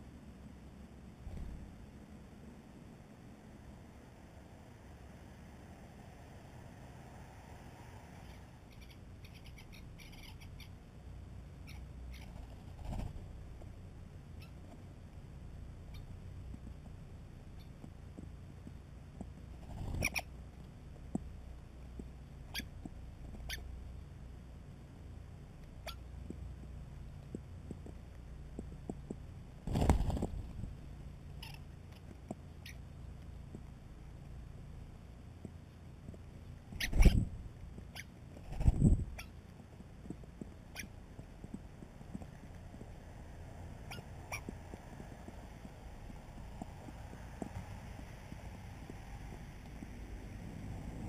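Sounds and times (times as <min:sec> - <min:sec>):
short high bird calls: 0:08.2 - 0:10.7, 0:43.8 - 0:44.5
birds chirping in clicking bursts: 0:08.3 - 0:10.8, 0:14.3 - 0:14.8, 0:15.8 - 0:19.4, 0:21.9 - 0:24.0, 0:25.6 - 0:29.2, 0:31.3 - 0:33.7, 0:35.4 - 0:42.6, 0:43.8 - 0:44.6
wings fluttering: 0:11.6 - 0:13.4, 0:19.3 - 0:20.4, 0:29.6 - 0:32.8, 0:36.6 - 0:51.0
wing flaps: 0:12.3 - 0:13.3, 0:29.6 - 0:30.8, 0:36.7 - 0:37.4, 0:38.4 - 0:39.2.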